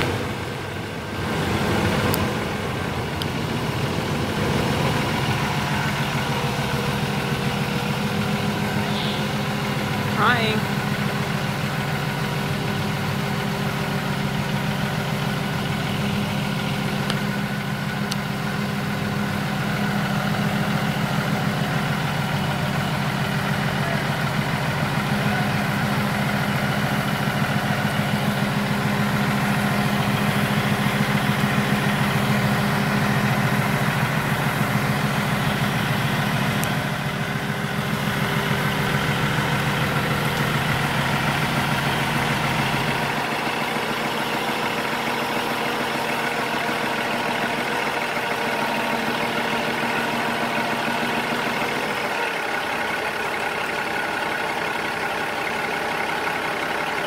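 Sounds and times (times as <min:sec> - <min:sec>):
diesel engine humming: 0:00.0 - 0:57.0.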